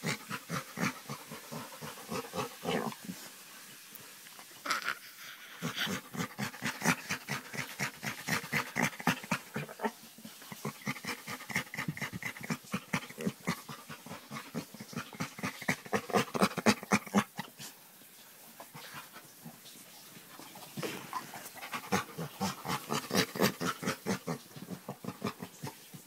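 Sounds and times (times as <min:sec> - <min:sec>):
dog panting huffs: 0:20.8 - 0:25.5.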